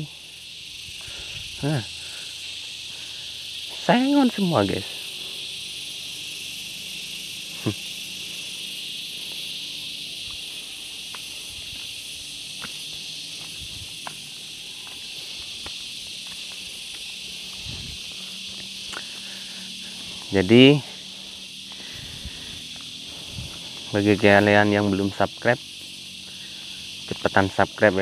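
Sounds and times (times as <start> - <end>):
insects droning: 0.0 - 28.0.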